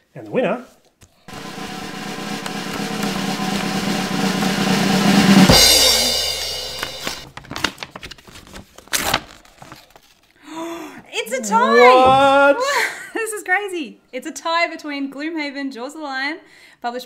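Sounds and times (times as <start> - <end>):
cymbal crash: 1.3 - 7.3
snare drum roll: 1.3 - 7.3
paper envelope rustling: 7.2 - 10.4.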